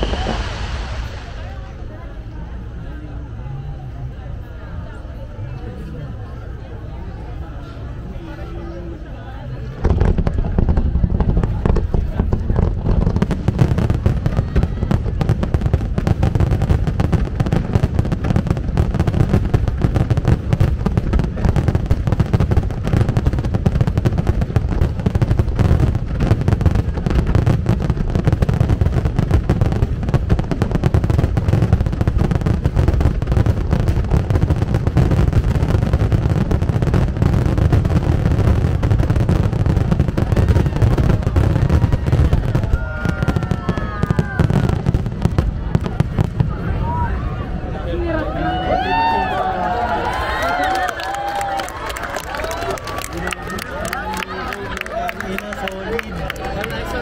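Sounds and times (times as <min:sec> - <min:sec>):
firework whistles: 0:00.0 - 0:02.8
fireworks bursts and booms: 0:00.0 - 0:03.1, 0:09.4 - 0:47.2.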